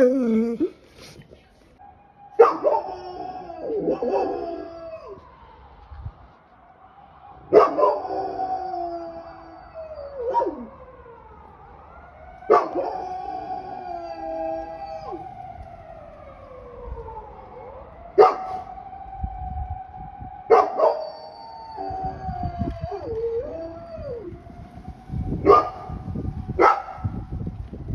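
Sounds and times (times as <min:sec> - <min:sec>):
dog howling: 0:02.3 - 0:05.3, 0:12.4 - 0:15.3, 0:20.4 - 0:24.3.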